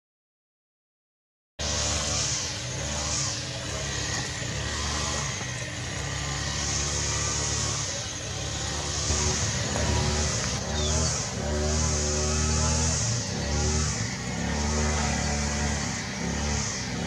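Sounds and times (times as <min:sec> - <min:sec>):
high pulsing hiss: 0:01.6 - 0:17.0
vehicle engine running: 0:01.6 - 0:17.0.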